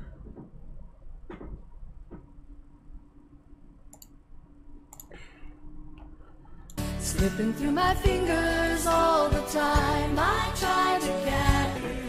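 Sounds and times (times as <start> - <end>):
computer mouse clicks: 3.9 - 4.2, 4.9 - 5.2.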